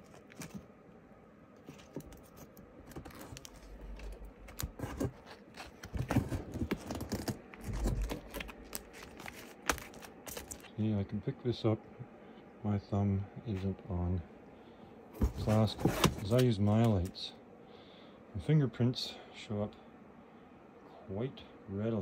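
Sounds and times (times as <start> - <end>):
comic books handled clicking and rustling: 0.0 - 0.7, 1.6 - 10.8, 15.2 - 17.2.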